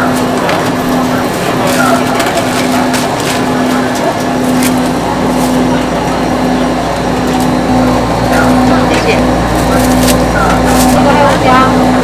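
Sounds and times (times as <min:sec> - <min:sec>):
crowd chatter: 0:00.0 - 0:12.0
intermittent low hum: 0:00.0 - 0:12.0.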